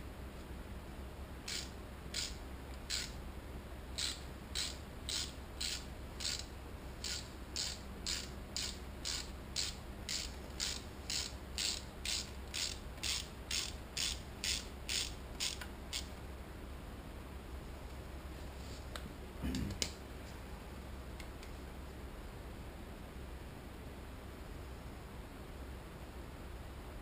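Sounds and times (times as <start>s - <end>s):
steady low hum: 0.0s - 27.0s
ratchet wrench clicking: 1.5s - 3.2s, 4.0s - 16.1s.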